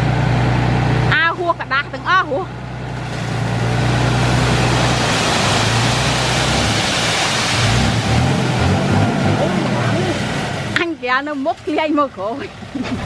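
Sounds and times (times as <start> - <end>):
truck engine humming: 0.0 - 13.0
sand pouring out of truck bed: 3.0 - 8.9.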